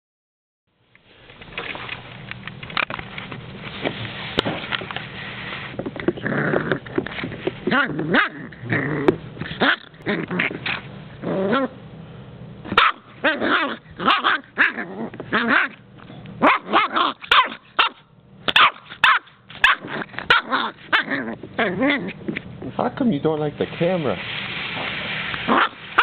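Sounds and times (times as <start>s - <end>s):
puppy growling: 6.0s - 11.8s, 12.7s - 15.8s, 19.6s - 22.8s
puppy barking: 9.6s - 10.0s, 12.7s - 15.8s, 16.4s - 22.2s, 25.5s - 26.0s.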